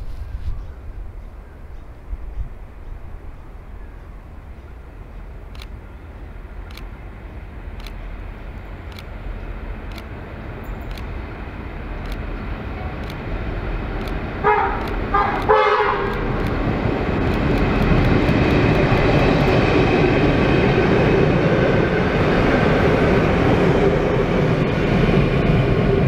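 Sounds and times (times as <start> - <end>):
train engine and wheels rumbling: 0.0 - 26.0
locomotive horn blasts: 14.4 - 16.4.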